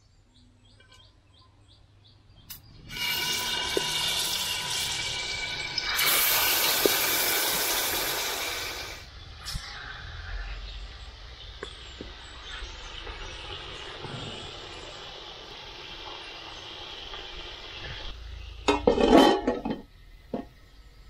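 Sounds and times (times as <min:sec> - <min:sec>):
chicken sizzling in hot oil: 0:02.9 - 0:09.1, 0:12.4 - 0:19.0.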